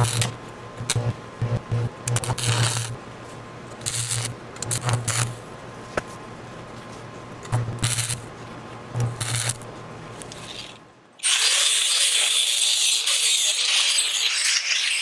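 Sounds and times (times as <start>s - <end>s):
welding arc crackle: 0.0s - 3.0s, 3.8s - 5.4s, 7.5s - 8.3s, 9.0s - 15.0s
low electrical hum: 0.0s - 15.0s
angle grinder grinding steel: 10.4s - 15.0s.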